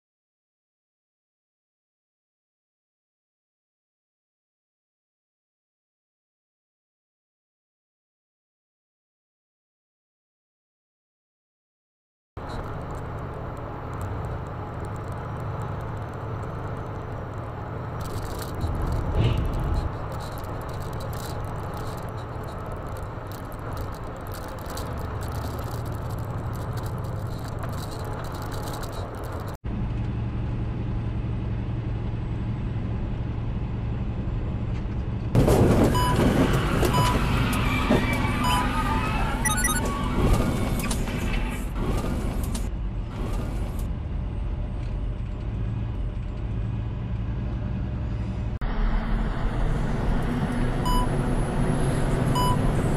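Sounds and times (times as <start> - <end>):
truck engine and road noise: 12.4 - 52.9
short high beeps: 39.4 - 39.8.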